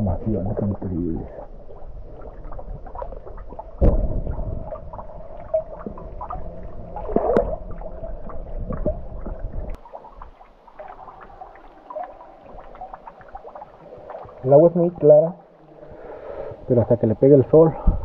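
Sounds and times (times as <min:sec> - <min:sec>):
low rumble: 0:00.0 - 0:09.8
water dripping into pool: 0:01.2 - 0:16.1.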